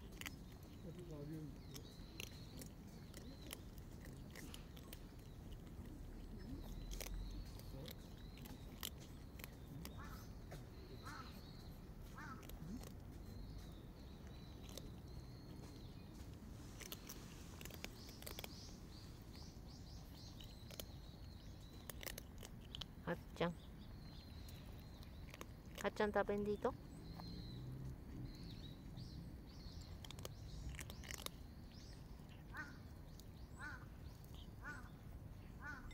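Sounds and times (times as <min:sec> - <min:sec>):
cats crunching dry kibble: 0:00.0 - 0:35.4
birds chirping: 0:00.0 - 0:35.9.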